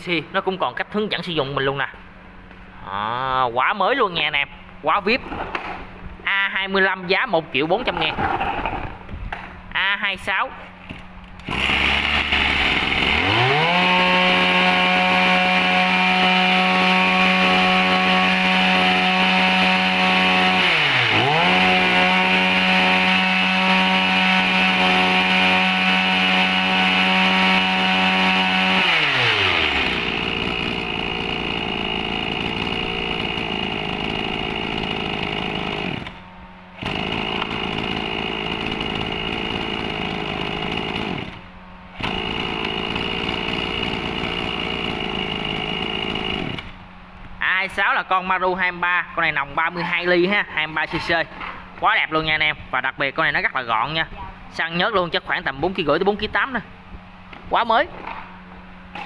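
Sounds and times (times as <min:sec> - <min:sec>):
brush cutter engine revving: 0:10.9 - 0:36.2, 0:36.8 - 0:46.8.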